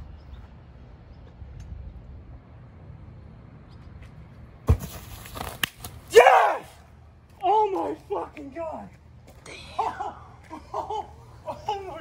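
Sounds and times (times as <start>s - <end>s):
steady low rumble: 0.0s - 4.7s
sharp landing thud: 4.6s - 5.9s.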